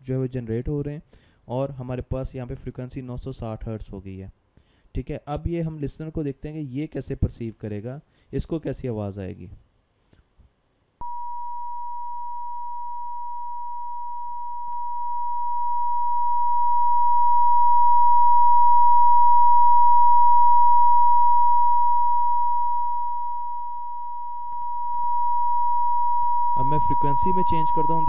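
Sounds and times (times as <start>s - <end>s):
steady sine tone: 11.0s - 28.0s.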